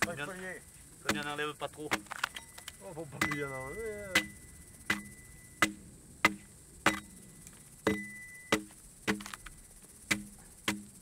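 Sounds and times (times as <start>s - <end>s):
axe chopping log: 1.0s - 2.1s, 4.2s - 7.0s, 7.9s - 9.4s, 10.1s - 11.0s.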